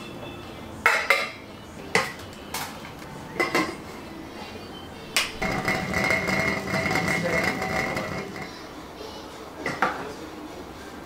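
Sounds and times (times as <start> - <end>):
steady hum: 0.0 - 9.6
metal pot and lid clanking: 0.8 - 2.2, 3.4 - 3.8, 5.2 - 8.5.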